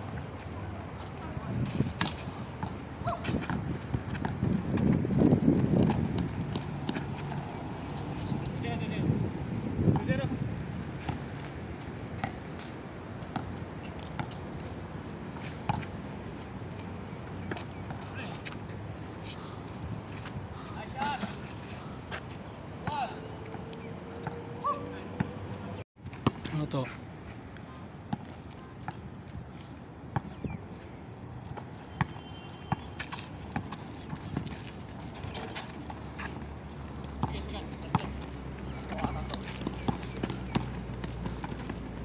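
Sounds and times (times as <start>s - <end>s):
basketball bouncing on asphalt: 2.0s - 9.0s, 9.7s - 14.4s, 15.6s - 16.0s, 22.9s - 24.4s, 26.1s - 26.5s, 30.2s - 30.4s, 31.5s - 42.0s.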